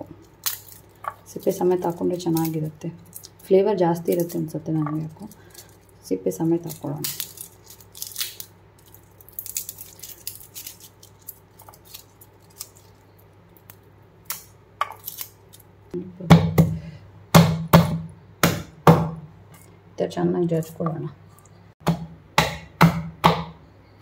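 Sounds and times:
garlic skins crackling: 0.0 - 16.0.

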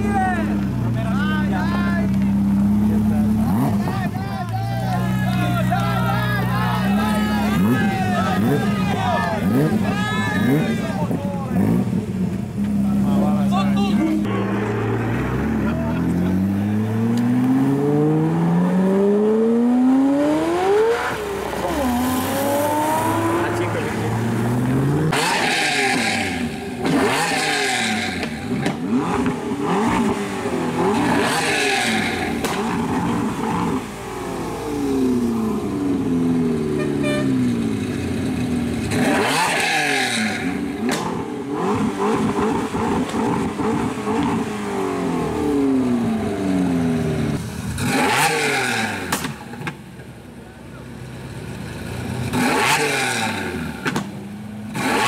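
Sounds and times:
car engine revving: 0.0 - 4.3, 4.9 - 49.8, 51.1 - 55.0
cars accelerating away: 4.9 - 36.8, 37.5 - 49.8, 51.8 - 55.0.

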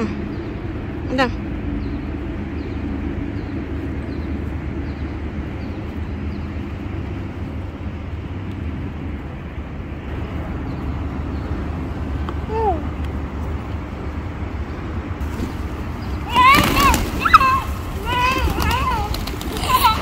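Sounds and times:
low outdoor rumble: 0.0 - 20.0.

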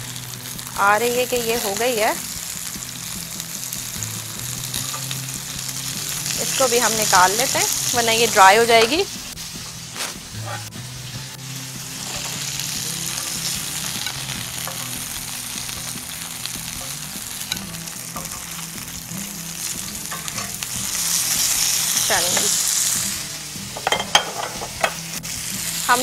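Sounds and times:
food sizzling in a pan: 0.0 - 26.0
utensil knocking against pan: 23.8 - 25.0.

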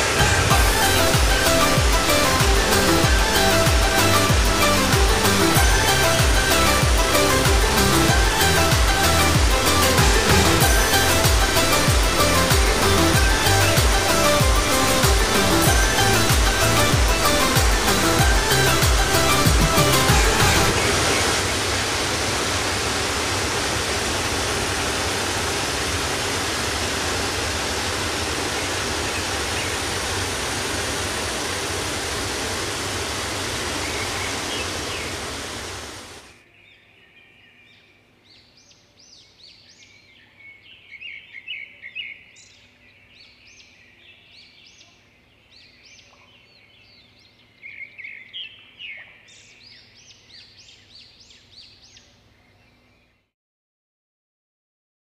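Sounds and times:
waterfall rushing: 0.0 - 36.3.

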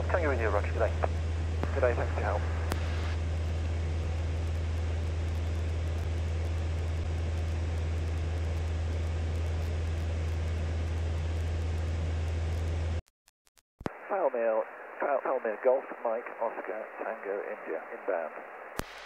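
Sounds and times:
aircraft engine and propeller drone: 0.0 - 13.0.

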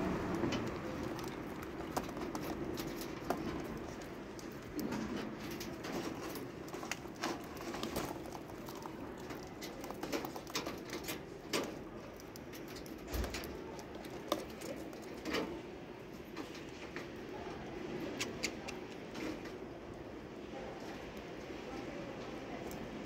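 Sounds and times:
seed rattling: 0.1 - 15.3
birds cracking seed: 0.2 - 15.5.

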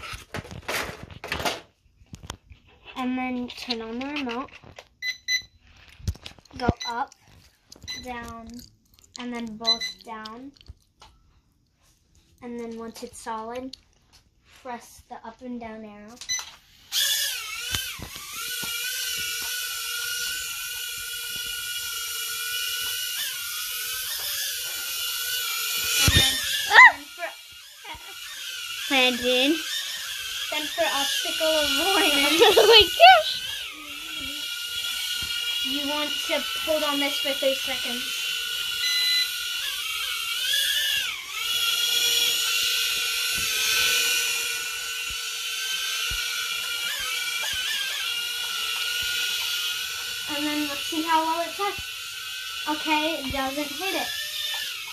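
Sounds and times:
quadcopter propellers whining: 16.8 - 54.9.

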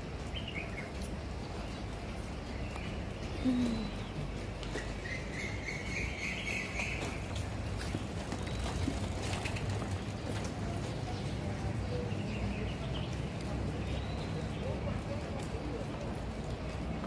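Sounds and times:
faint bird chirping: 1.6 - 10.1.

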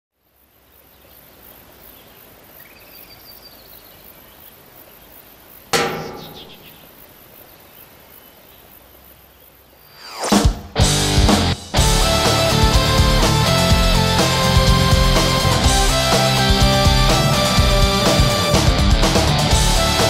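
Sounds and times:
loud thud: 5.8 - 7.0.

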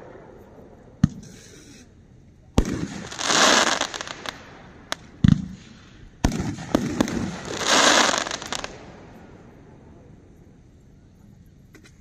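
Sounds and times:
firework shots banging: 1.0 - 1.5, 2.6 - 9.0
firework crackling: 2.5 - 9.7.

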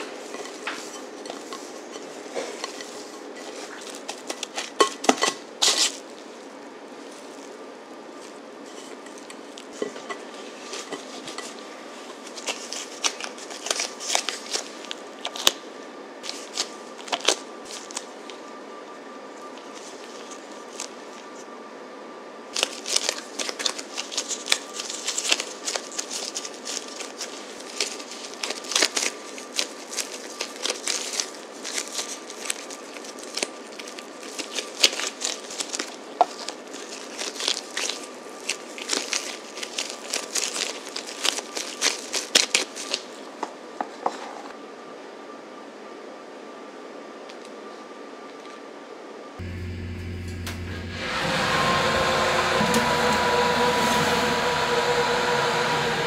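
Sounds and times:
gloves and dough crinkling: 0.0 - 44.6.

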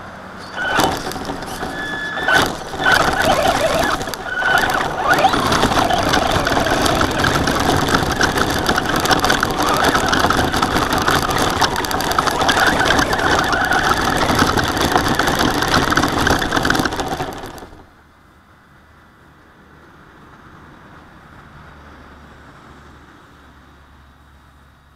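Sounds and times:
toy truck drivetrain noise: 0.4 - 17.9
tyres crunching on gravel: 0.4 - 17.9.

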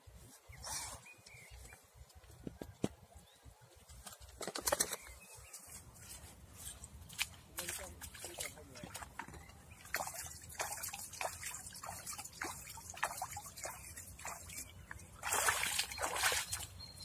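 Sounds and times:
boots wading through water: 5.8 - 17.0
water sloshing in bucket: 7.1 - 16.8.

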